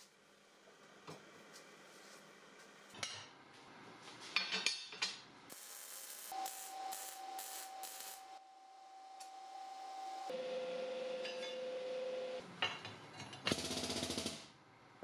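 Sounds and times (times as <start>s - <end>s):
arc welding crackling hiss: 5.5s - 8.4s
steady welding whine: 5.5s - 12.4s.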